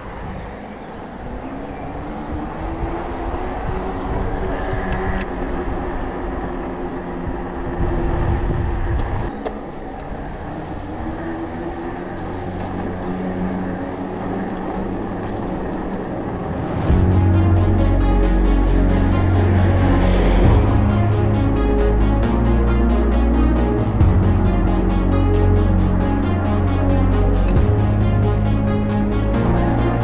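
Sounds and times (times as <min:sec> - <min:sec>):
wind buffeting a camera: 0:00.0 - 0:16.9
tyres rolling on asphalt: 0:00.0 - 0:30.0
loud music: 0:16.9 - 0:30.0.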